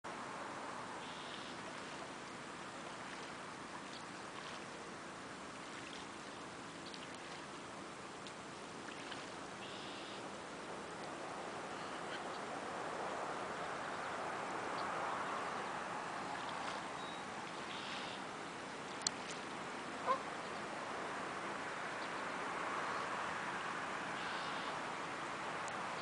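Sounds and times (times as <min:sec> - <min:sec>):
wind: 0:00.0 - 0:26.0
waterbird call: 0:01.0 - 0:04.9, 0:05.5 - 0:07.6, 0:08.8 - 0:12.5, 0:13.5 - 0:26.0
lapping water: 0:05.5 - 0:07.6, 0:08.2 - 0:09.4.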